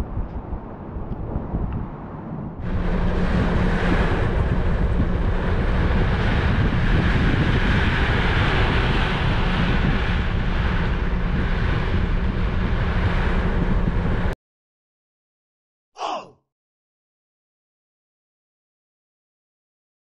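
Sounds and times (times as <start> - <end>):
road and engine rumble: 0.0 - 14.4.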